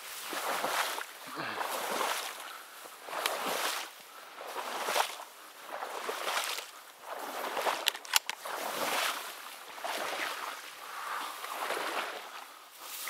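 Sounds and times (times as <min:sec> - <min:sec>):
rhythmic swishing through water: 0:00.0 - 0:13.0
sharp clicks: 0:07.8 - 0:08.4.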